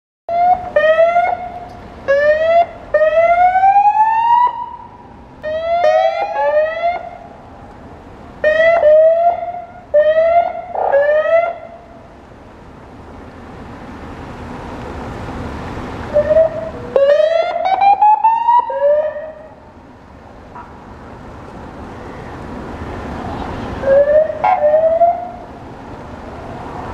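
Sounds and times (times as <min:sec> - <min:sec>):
car engine and tyre noise: 0:00.3 - 0:26.9
police siren whoops: 0:05.5 - 0:07.2, 0:16.2 - 0:19.5.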